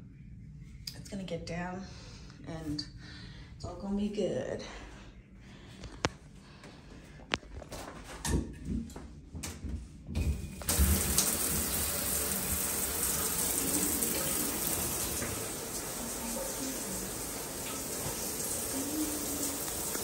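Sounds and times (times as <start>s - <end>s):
shower water running: 10.2s - 20.0s.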